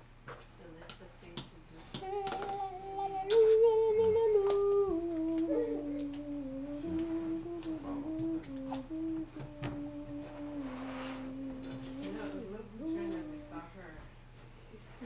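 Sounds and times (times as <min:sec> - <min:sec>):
girl humming a slow tune: 0:02.0 - 0:13.8.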